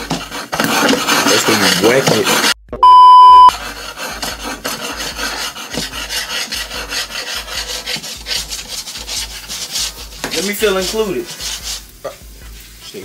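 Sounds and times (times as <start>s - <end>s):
scratchy rubbing rasp: 0.0s - 2.6s, 3.5s - 13.0s
test tone beep: 2.8s - 3.5s.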